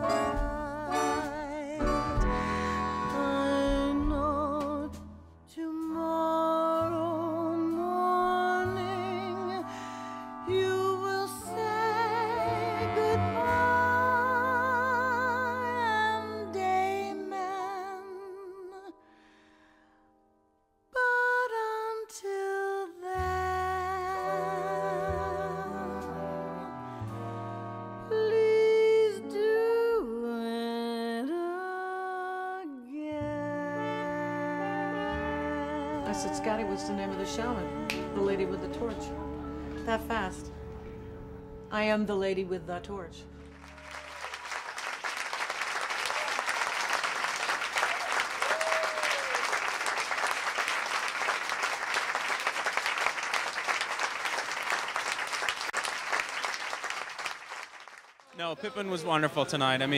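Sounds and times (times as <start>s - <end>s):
instrumental accompaniment: 0.0s - 6.0s, 7.6s - 17.9s, 23.2s - 29.7s, 33.5s - 43.8s
woman singing slow song: 0.0s - 19.0s, 21.0s - 26.7s, 28.0s - 43.1s
audience applauding: 43.3s - 59.9s.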